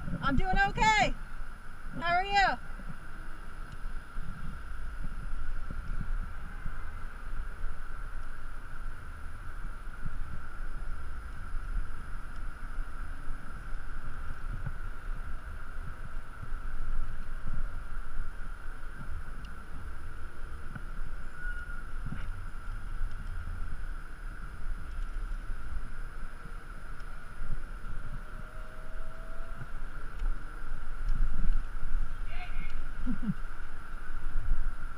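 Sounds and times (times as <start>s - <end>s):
wind buffeting microphone: 0.0s - 34.9s.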